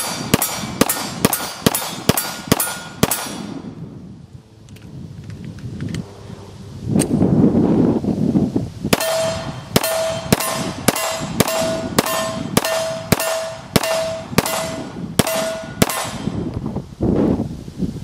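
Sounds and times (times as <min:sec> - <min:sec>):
bullet ringing on steel plate: 0:00.0 - 0:03.5, 0:09.0 - 0:16.4
pistol shots: 0:00.0 - 0:03.5, 0:09.0 - 0:16.4.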